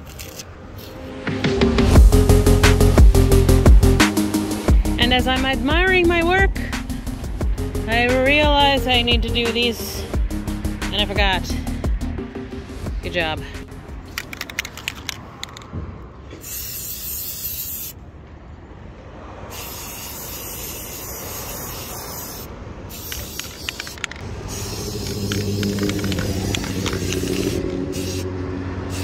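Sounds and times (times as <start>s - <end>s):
spray can hissing: 16.4s - 18.0s, 19.5s - 28.3s
steady low hum: 24.2s - 28.9s.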